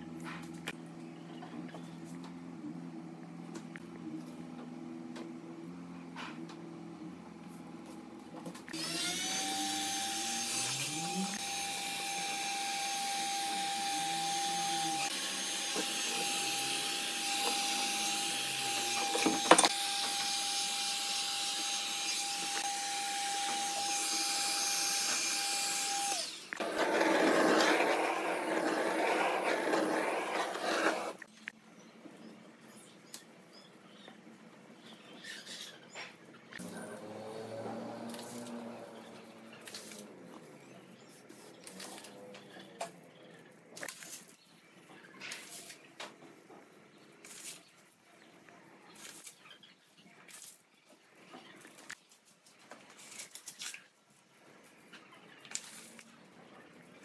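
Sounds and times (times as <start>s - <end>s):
electric power tool whining: 8.7s - 31.3s, 36.6s - 39.5s
rough uneven noise: 26.6s - 31.3s.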